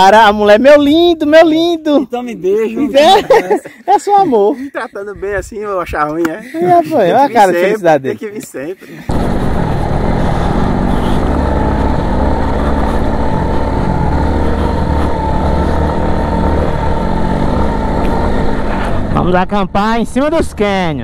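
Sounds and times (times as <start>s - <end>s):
vehicle engine running: 9.0s - 20.9s.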